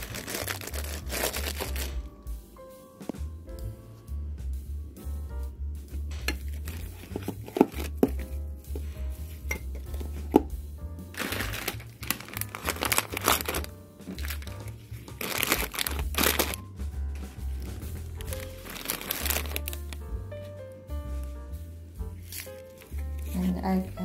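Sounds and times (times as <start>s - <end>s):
packaging crinkling: 0.0s - 2.0s, 6.5s - 8.3s, 11.1s - 16.6s, 18.1s - 20.0s, 22.2s - 23.4s
background music with bass: 0.0s - 24.0s.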